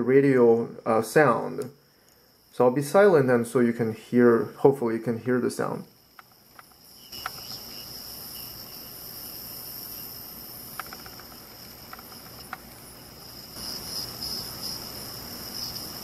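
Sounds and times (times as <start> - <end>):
radio hiss with high whine: 0.0 - 16.0.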